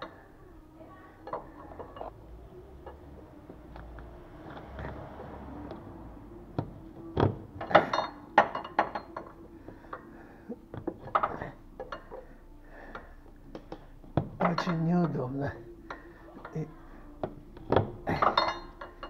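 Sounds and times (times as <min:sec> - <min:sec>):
spanner clinking on metal: 0:07.6 - 0:10.0, 0:11.0 - 0:12.3, 0:14.4 - 0:15.2, 0:17.6 - 0:19.0.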